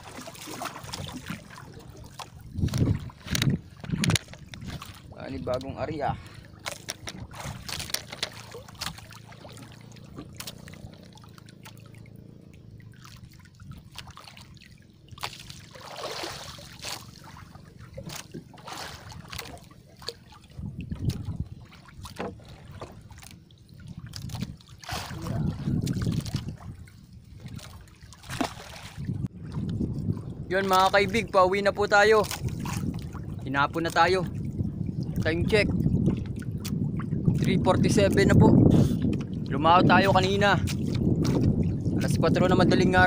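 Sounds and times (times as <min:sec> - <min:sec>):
water sloshing against boat: 0:00.0 - 0:43.0
fishing line knocks and clicks: 0:02.7 - 0:04.8, 0:06.6 - 0:09.0.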